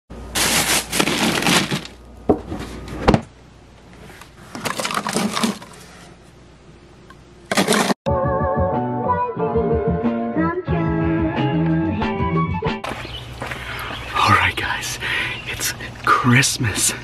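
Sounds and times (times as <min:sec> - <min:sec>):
ice cubes rattling against bottles: 0:00.4 - 0:02.0, 0:04.5 - 0:05.8, 0:07.5 - 0:08.0
background music: 0:08.1 - 0:12.8.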